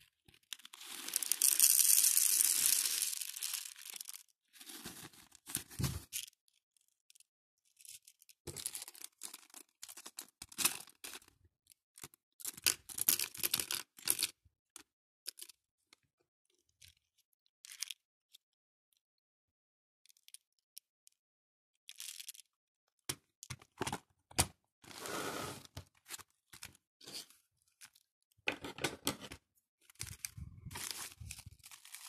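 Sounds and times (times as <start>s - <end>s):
beads rattling into plastic box: 0.5s - 5.0s, 30.0s - 32.0s
plastic bags crinkling: 30.1s - 32.0s.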